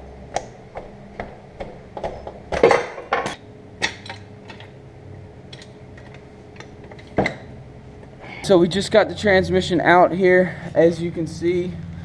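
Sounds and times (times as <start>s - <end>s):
metal car parts and tools clanking: 2.0s - 4.8s, 5.5s - 7.5s.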